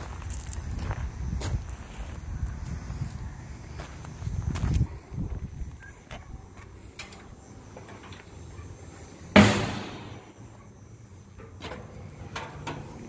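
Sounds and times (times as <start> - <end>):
metal handles and hinges clicking: 6.6 - 10.2, 11.3 - 13.0
heavy metal lid clunk: 9.3 - 10.4.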